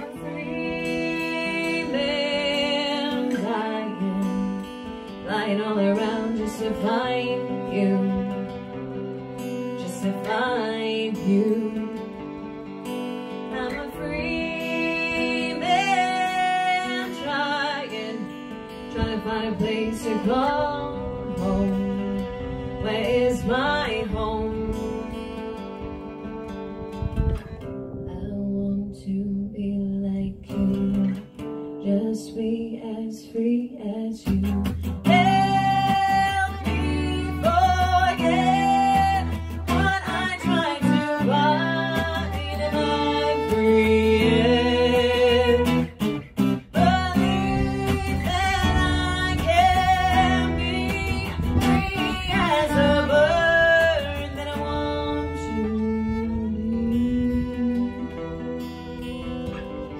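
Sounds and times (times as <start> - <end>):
violin playing: 0.0 - 27.7, 35.1 - 59.9
acoustic guitar strumming chords: 0.0 - 32.1, 34.3 - 59.9.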